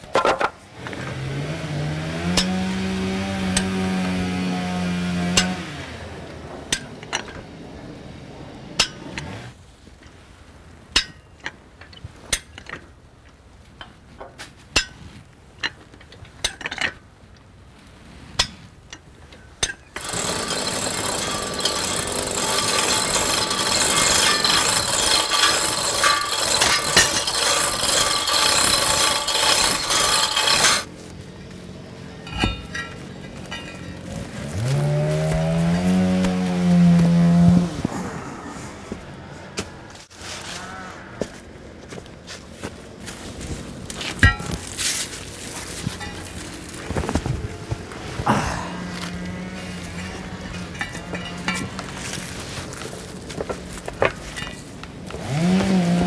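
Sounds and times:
loud rasping machine noise: 0.9 - 6.9, 20.0 - 30.9, 32.3 - 37.7, 55.1 - 56.0
metal tool clicks and knocks: 32.2 - 34.0.

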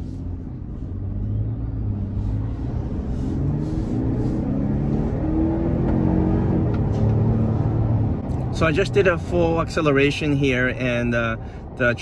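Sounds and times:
truck engine accelerating: 0.0 - 9.3.

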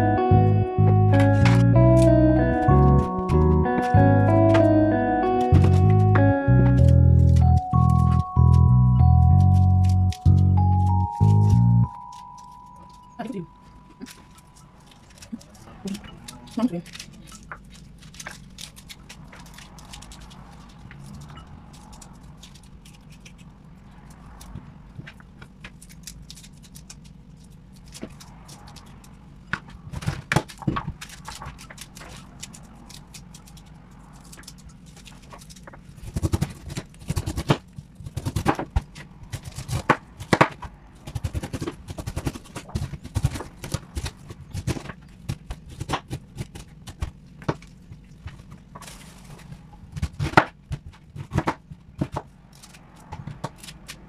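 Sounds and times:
steady low hum: 0.0 - 54.0.

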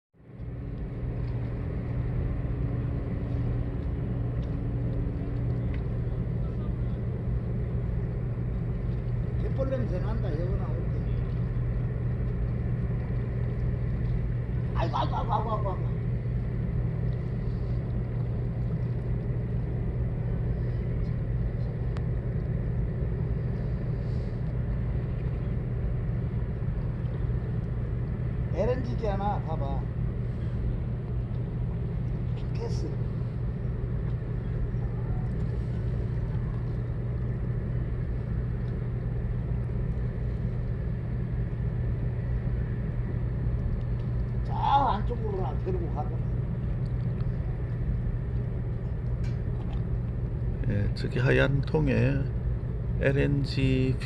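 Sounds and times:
steady low rumble: 0.1 - 54.0
engine running: 0.2 - 54.0.

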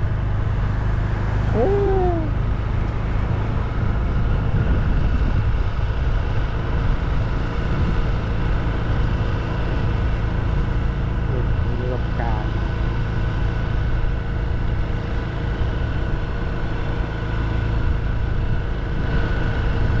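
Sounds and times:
vehicle rumble on road: 0.0 - 20.0
rising and falling call: 1.5 - 2.4.

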